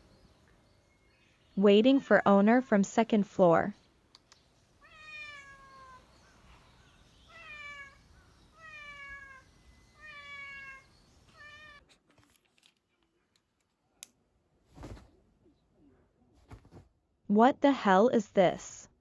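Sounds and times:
cat meowing: 4.8 - 6.1, 7.3 - 8.0, 8.6 - 11.8.

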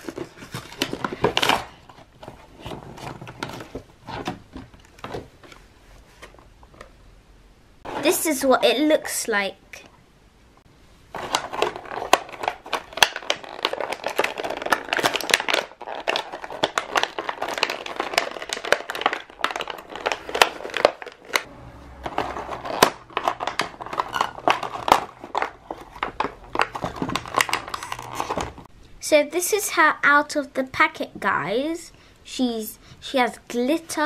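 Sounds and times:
plastic packaging crinkling: 11.1 - 28.7.

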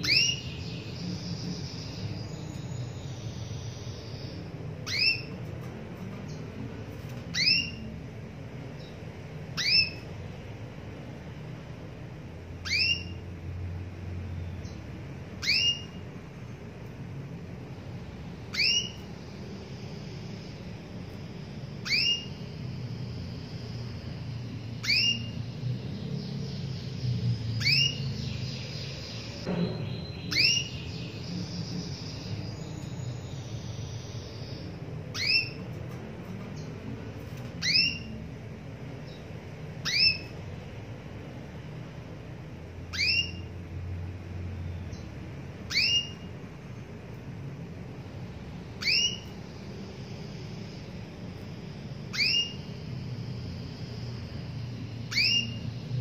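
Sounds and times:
high twittering: 6.9 - 10.8, 12.5 - 13.5, 14.6 - 35.9, 36.6 - 41.5, 42.2 - 43.8, 44.8 - 47.1, 47.7 - 56.0.

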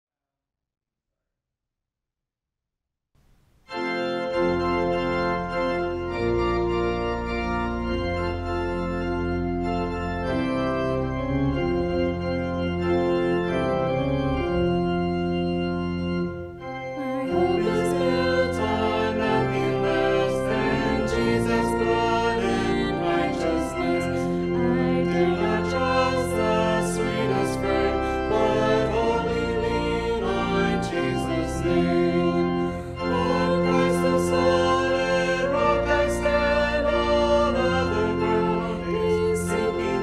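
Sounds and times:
organ playing sustained chords: 3.6 - 40.0.

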